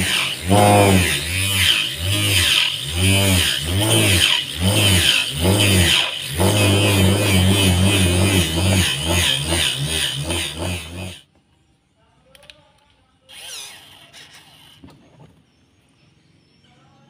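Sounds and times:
electric drill motor running: 0.0s - 11.2s, 13.3s - 14.9s
hole saw cutting wood: 0.0s - 11.2s.

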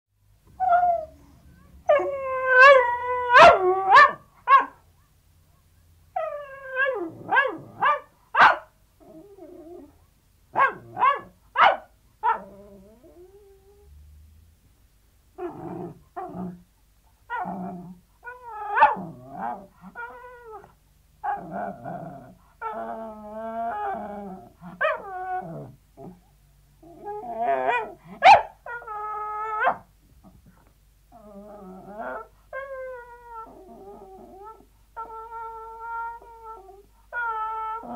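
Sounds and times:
dog yelping and crying: 0.6s - 4.8s, 6.2s - 8.6s, 17.3s - 22.0s, 22.6s - 25.7s, 26.9s - 29.8s, 31.3s - 37.9s.

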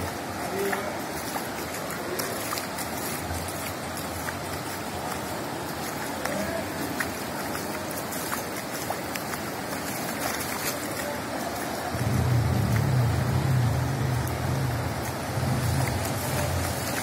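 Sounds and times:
rain and floodwater hissing: 0.0s - 17.0s
low rumble: 11.9s - 17.0s.

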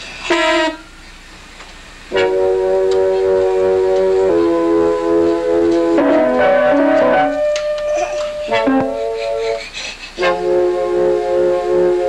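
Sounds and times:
electronic keyboard note cluster: 2.1s - 9.6s, 10.2s - 12.0s.

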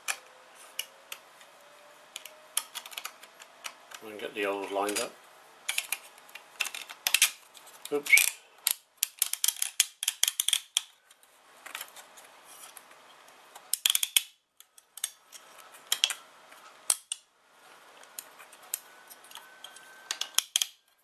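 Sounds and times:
small metal parts clinking: 5.7s - 7.4s, 8.1s - 10.9s.

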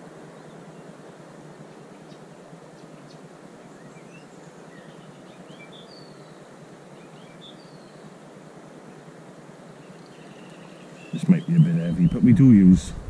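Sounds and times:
small birds chirping: 1.6s - 8.2s, 9.7s - 13.0s.

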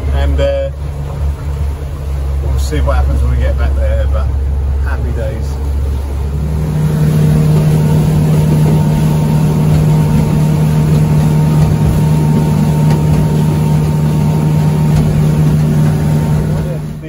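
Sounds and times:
outboard motor droning: 0.0s - 17.0s
water rushing against hull: 0.0s - 17.0s.

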